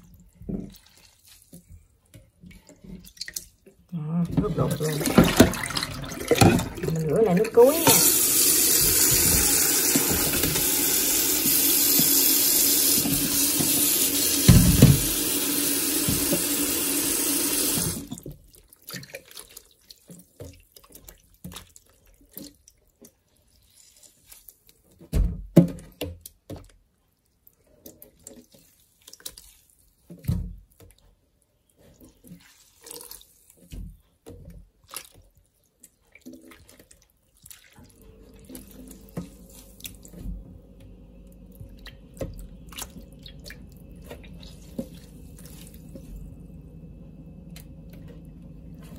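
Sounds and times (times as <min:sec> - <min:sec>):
water splashing and sloshing: 0:00.0 - 0:25.0, 0:31.8 - 0:48.9
tap running into bowl of water: 0:04.4 - 0:18.4, 0:38.3 - 0:48.9
faint steady hum: 0:37.9 - 0:48.9.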